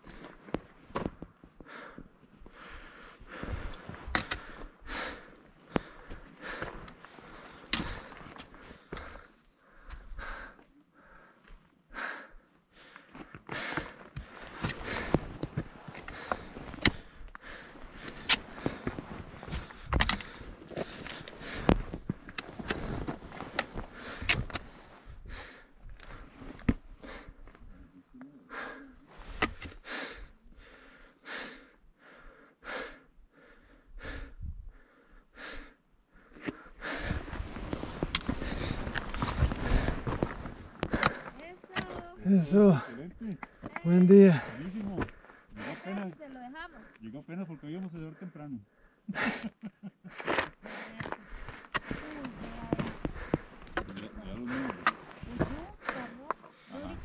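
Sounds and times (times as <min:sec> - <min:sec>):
person breathing hard: 0:00.0 - 0:46.0, 0:48.6 - 0:57.0
trekking pole tapping on rock: 0:07.6 - 0:09.0, 0:18.0 - 0:22.8.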